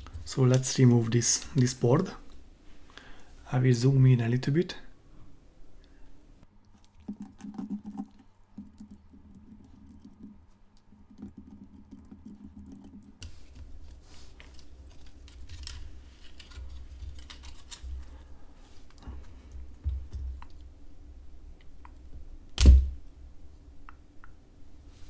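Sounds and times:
rubbing and handling noise: 6.8 - 20.7.

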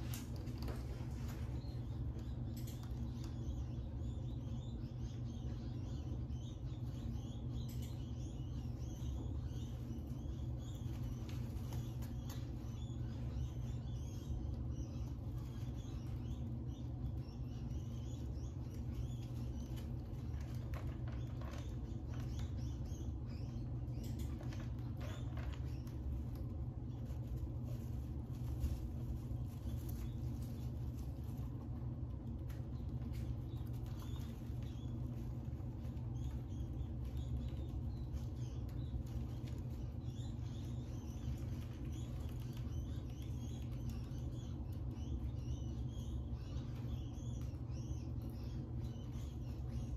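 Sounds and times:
rats rustling in bedding: 0.0 - 49.9
steady low hum: 0.0 - 49.9.

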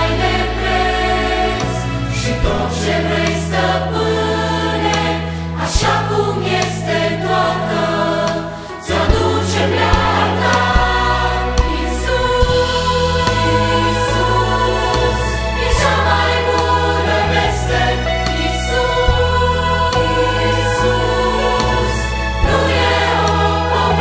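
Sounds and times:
adult and children's choir singing: 0.0 - 24.0
piano: 0.0 - 24.0
bass guitar notes: 9.0 - 24.0.

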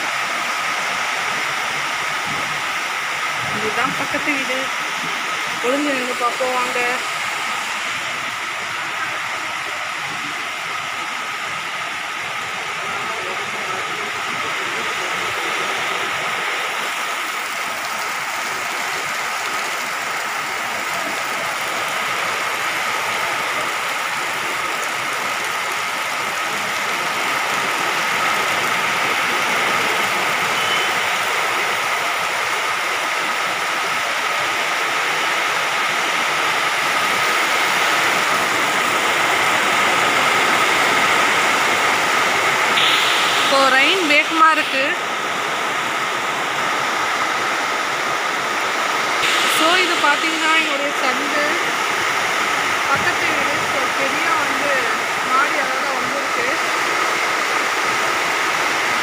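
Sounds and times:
heavy rain pouring: 0.0 - 59.0.

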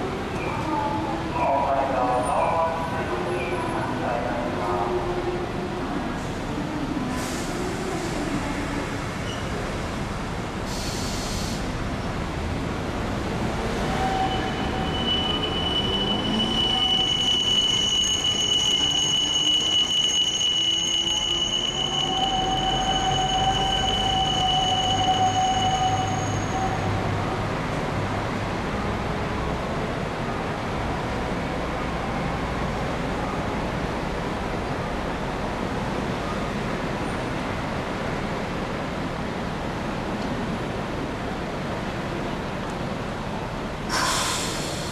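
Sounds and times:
street noise: 0.0 - 44.9
tram wheels squealing on rail: 9.2 - 9.6, 13.6 - 27.4, 43.9 - 44.9
short hiss: 10.7 - 11.6, 43.9 - 44.9.

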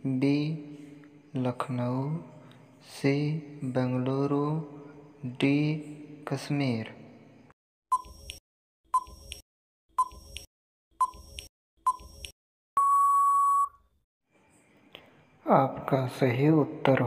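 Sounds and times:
long timer beep: 12.8 - 13.8.

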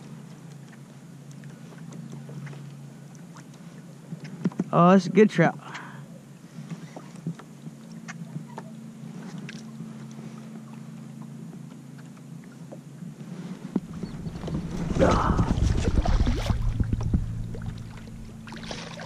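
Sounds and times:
low steady hum: 7.3 - 19.0
fish thrashing and splashing: 13.8 - 19.0.

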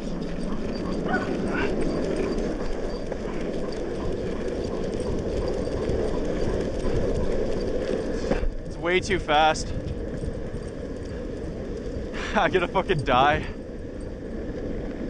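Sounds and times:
longboard wheels rolling on asphalt: 0.0 - 15.0
wind on microphone: 0.0 - 15.0
dog whining: 0.4 - 7.6.

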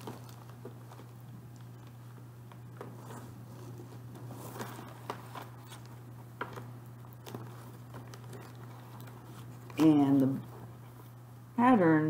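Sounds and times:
paper rustling: 0.0 - 11.0
steady low hum: 0.0 - 12.0.

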